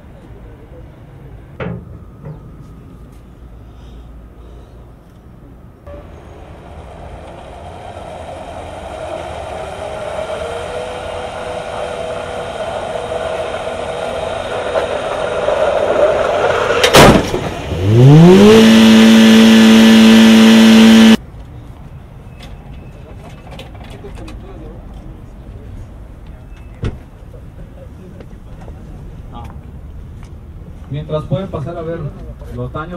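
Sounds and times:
car engine whine: 0:05.8 - 0:21.2
car crashing into barrier: 0:16.6 - 0:17.7
loud rising tone: 0:17.7 - 0:21.2.

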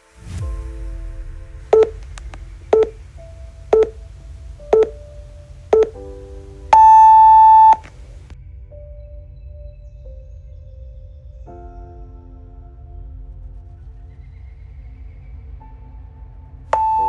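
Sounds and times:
soft background music: 0:00.0 - 0:17.0
long higher beep: 0:01.7 - 0:02.0, 0:02.7 - 0:03.0, 0:03.7 - 0:04.0, 0:04.7 - 0:05.0, 0:05.7 - 0:06.0, 0:06.7 - 0:07.8, 0:16.8 - 0:17.0
short electronic beeps: 0:01.8 - 0:02.0, 0:02.8 - 0:03.0, 0:03.8 - 0:04.0, 0:04.7 - 0:05.0, 0:05.8 - 0:06.0, 0:06.7 - 0:07.8, 0:16.8 - 0:17.0.

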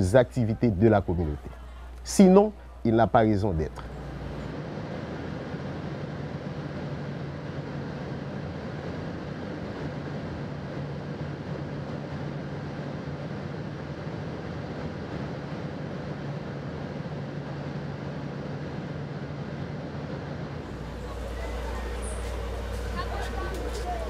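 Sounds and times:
aircraft engine droning: 0:00.0 - 0:24.0.

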